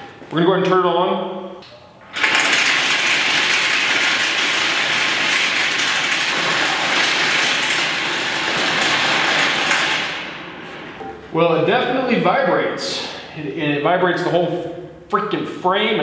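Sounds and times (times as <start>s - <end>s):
shaker table rattling: 2.2s - 11.0s.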